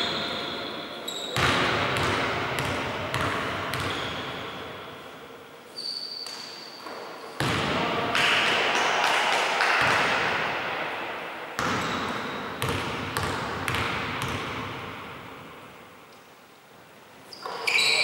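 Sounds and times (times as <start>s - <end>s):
basketball bouncing in echoing gym: 0.0s - 5.1s, 5.9s - 10.9s, 11.6s - 15.8s.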